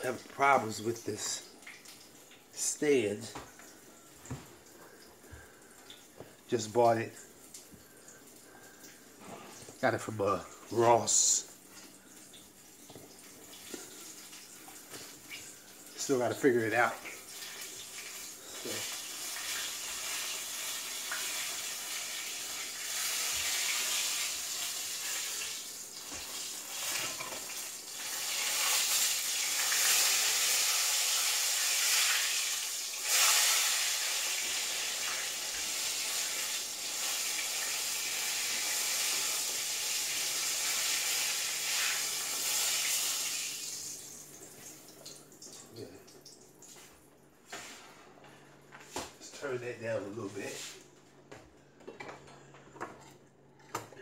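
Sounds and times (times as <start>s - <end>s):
fish frying in hot oil: 16.7s - 44.1s.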